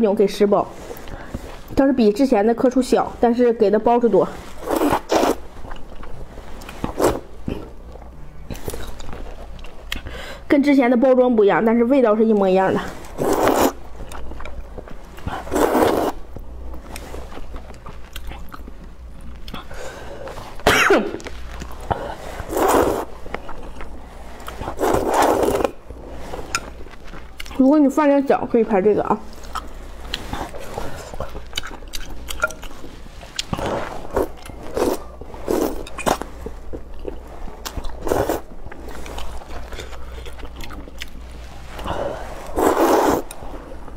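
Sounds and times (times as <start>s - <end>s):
person slurping noodles: 4.6s - 5.4s, 13.0s - 13.8s, 15.3s - 16.2s, 21.9s - 23.2s, 24.5s - 26.3s, 33.6s - 36.3s, 38.0s - 38.5s, 41.8s - 43.4s
chewing with wet clicks: 17.0s - 19.7s, 31.2s - 33.6s, 38.7s - 41.2s.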